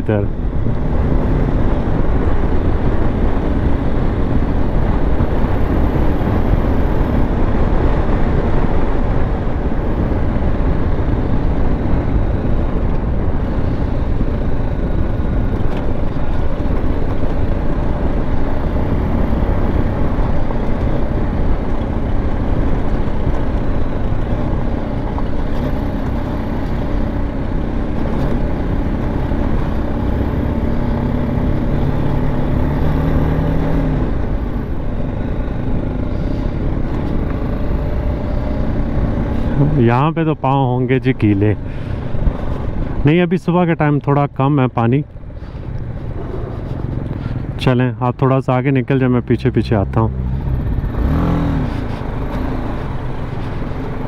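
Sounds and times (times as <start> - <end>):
motorcycle engine running: 0.0 - 40.0, 49.9 - 54.0
wind noise: 0.0 - 40.0, 41.6 - 43.1
road noise on gravel: 0.0 - 54.0.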